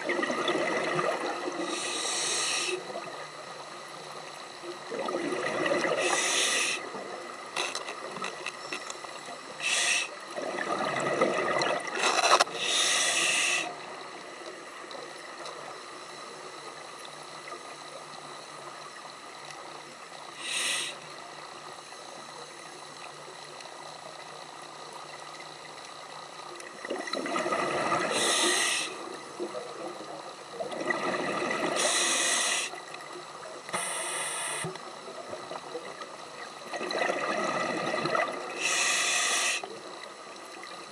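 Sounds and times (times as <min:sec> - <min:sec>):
steady faint hiss: 0:00.0 - 0:40.9
diver breathing through regulator: 0:01.7 - 0:02.9, 0:05.9 - 0:06.8, 0:09.6 - 0:10.2, 0:12.0 - 0:13.8, 0:20.4 - 0:21.0, 0:28.0 - 0:29.0, 0:31.7 - 0:32.8, 0:33.7 - 0:34.8, 0:38.5 - 0:39.7.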